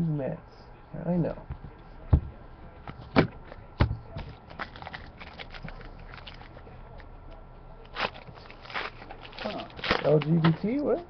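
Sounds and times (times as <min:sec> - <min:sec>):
cards being handled: 0:04.2 - 0:06.6, 0:07.9 - 0:11.0
foil pack tearing and crackling: 0:04.5 - 0:06.6, 0:07.9 - 0:10.8.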